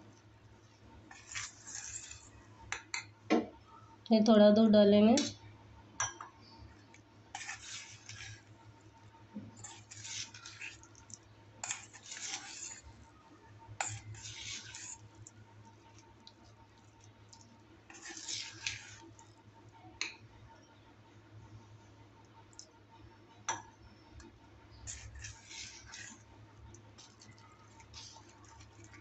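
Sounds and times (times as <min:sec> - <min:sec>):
spoon stirring batter in bowl: 0:00.1 - 0:03.2, 0:06.0 - 0:20.3, 0:23.4 - 0:29.0
spoon clinking against bowl: 0:06.0 - 0:06.3.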